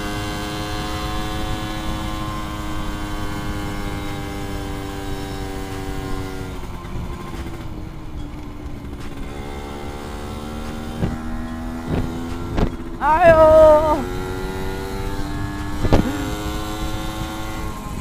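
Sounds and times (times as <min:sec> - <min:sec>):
motorcycle engine running: 0:00.0 - 0:18.0
wind rumble on microphone: 0:11.0 - 0:18.0.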